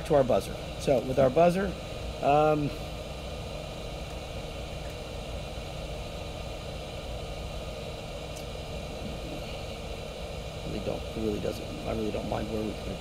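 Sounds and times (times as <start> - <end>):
low machine hum: 0.0 - 13.0
even hiss: 0.1 - 2.9.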